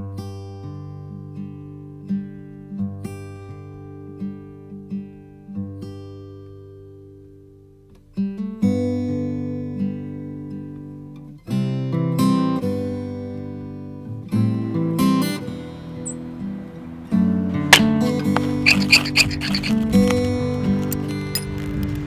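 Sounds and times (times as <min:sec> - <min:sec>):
acoustic guitar strumming: 0:11.4 - 0:22.0.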